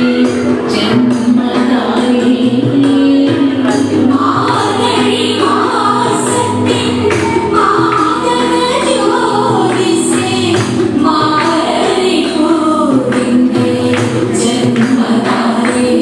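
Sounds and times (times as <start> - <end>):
voices singing with accompaniment: 0.0 - 16.0
hand claps: 6.9 - 8.5, 9.6 - 16.0.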